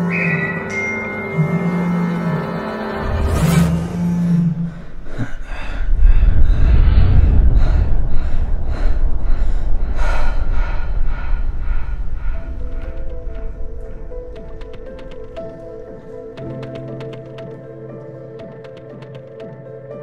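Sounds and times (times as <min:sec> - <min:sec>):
held low tone: 0:00.0 - 0:18.7
deep pulsing rumble: 0:01.8 - 0:18.8
whoosh: 0:02.9 - 0:16.8.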